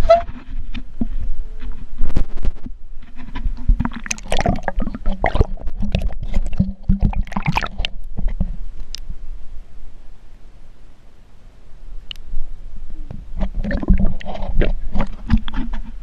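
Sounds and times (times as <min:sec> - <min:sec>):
water splashing and gurgling: 0:03.6 - 0:08.5, 0:13.1 - 0:15.9.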